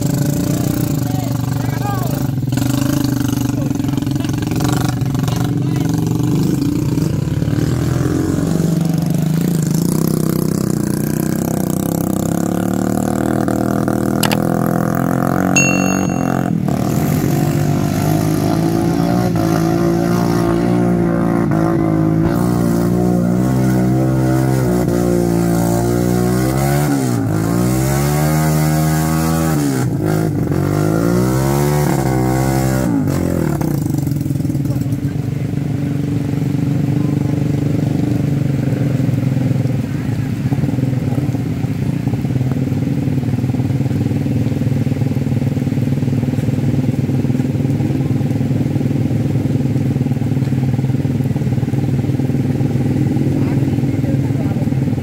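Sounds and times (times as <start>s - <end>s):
motorcycle engines revving in mud: 0.0s - 55.0s.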